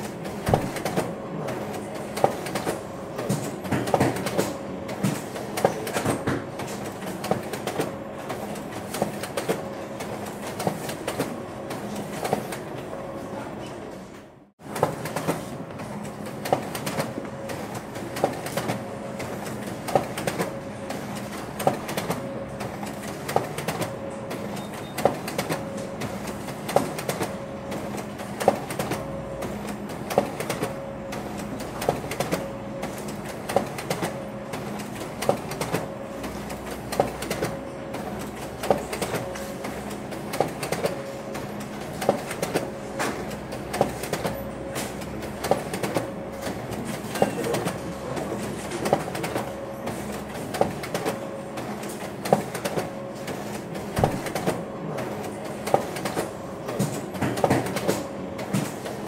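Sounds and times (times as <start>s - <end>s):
photocopier clacking: 0.0s - 12.8s, 14.7s - 59.0s
photocopier humming: 0.0s - 59.0s.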